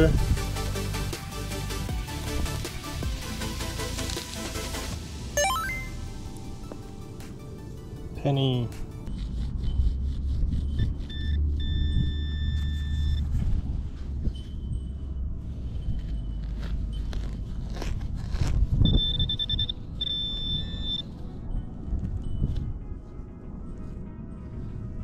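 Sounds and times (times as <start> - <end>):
metal detector beeping: 11.1 - 13.3, 18.9 - 22.6
digging in dirt: 15.6 - 20.4.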